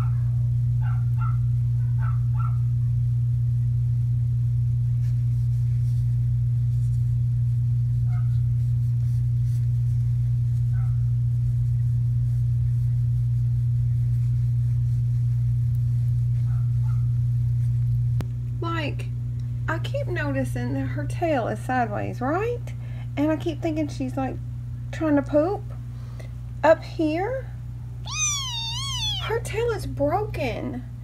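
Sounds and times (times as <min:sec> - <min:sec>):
kittens squeaking: 0:28.1 - 0:29.4.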